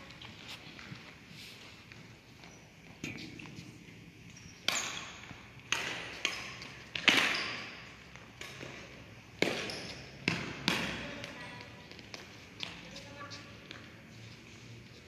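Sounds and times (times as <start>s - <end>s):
rackets hitting shuttlecock: 4.6s - 13.0s.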